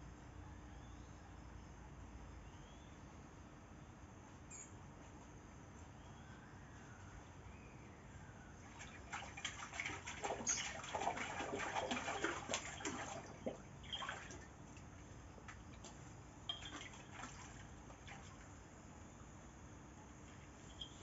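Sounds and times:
dog splashing in water: 8.6s - 14.9s, 15.5s - 18.6s
water dripping: 8.8s - 18.5s, 20.3s - 21.0s.

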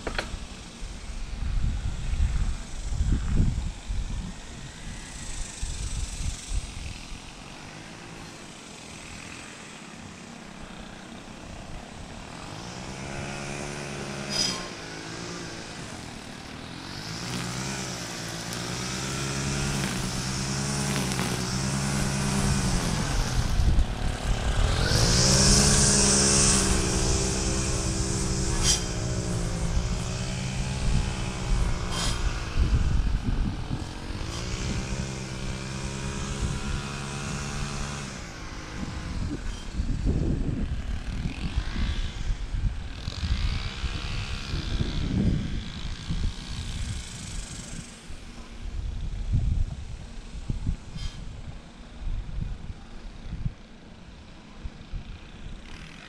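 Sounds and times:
pickup truck engine humming: 10.5s - 37.9s.

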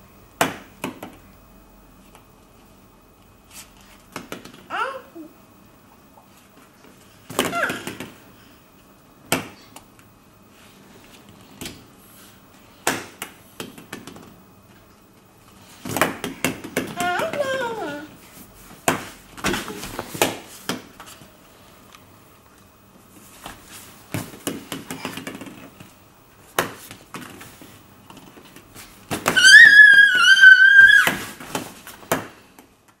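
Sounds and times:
baby babbling squeals: 29.4s - 31.2s.

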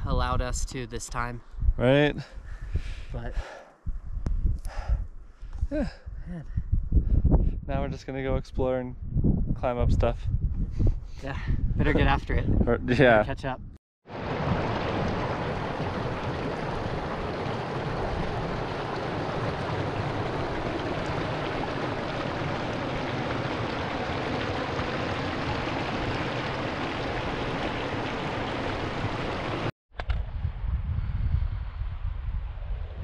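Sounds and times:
rushing water of stream: 14.1s - 29.7s.

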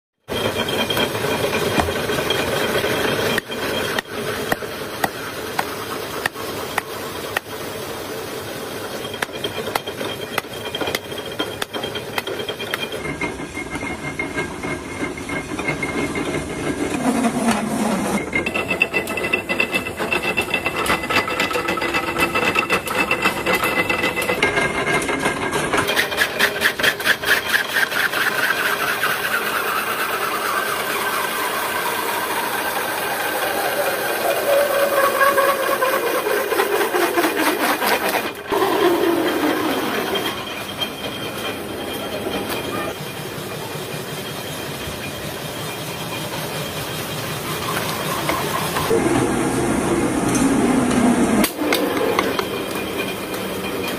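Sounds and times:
machine whine sliding down: 8.0s - 25.5s, 28.4s - 53.9s.

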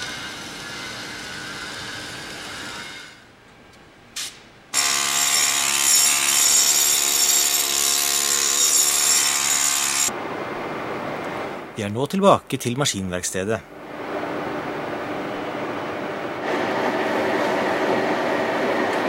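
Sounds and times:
harsh buzzing metalworking noise: 0.0s - 3.4s, 4.7s - 10.1s, 13.7s - 19.0s.

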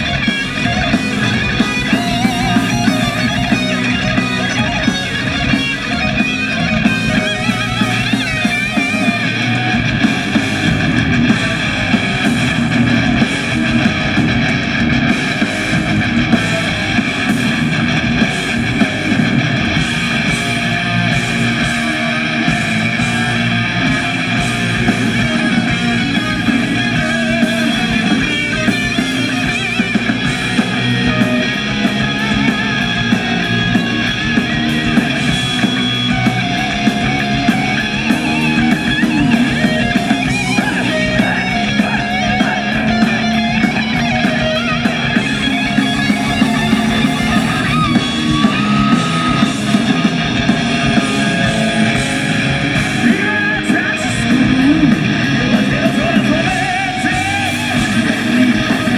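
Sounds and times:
bass guitar: 0.0s - 58.9s
electric guitars: 0.0s - 58.9s
fast drumming: 0.0s - 58.9s.

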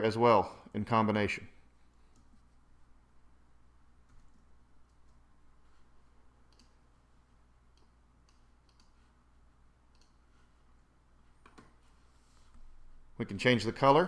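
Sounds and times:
low steady room hum: 0.0s - 14.0s
faint computer mouse clicks: 6.5s - 6.8s, 7.7s - 9.0s, 9.9s - 10.2s.

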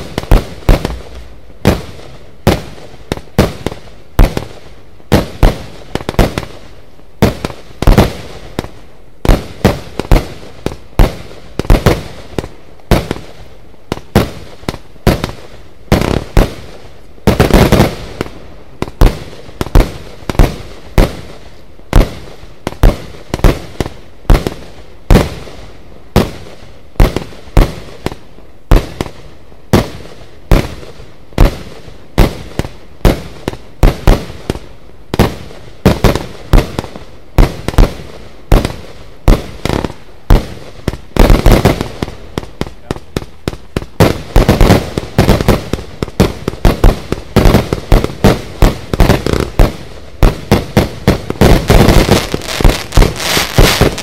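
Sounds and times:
firework cake bangs: 35.2s - 54.0s.

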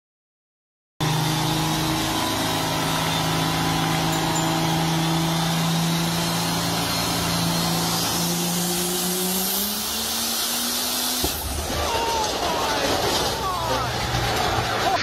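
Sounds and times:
diesel engine running flat out: 1.0s - 15.0s.

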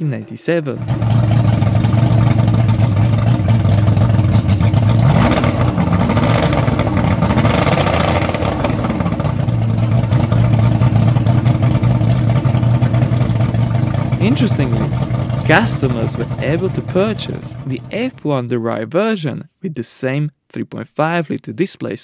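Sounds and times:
outboard engine revving: 0.8s - 18.2s.

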